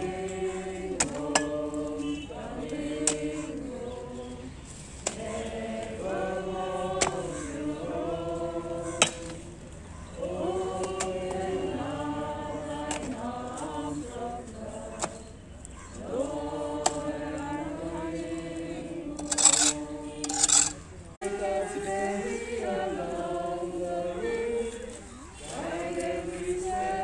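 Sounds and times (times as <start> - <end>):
group singing a hymn: 0.0 - 27.0
spade striking earth and brick: 0.9 - 1.7, 7.0 - 7.4, 9.0 - 9.4, 15.0 - 15.2, 19.2 - 20.8.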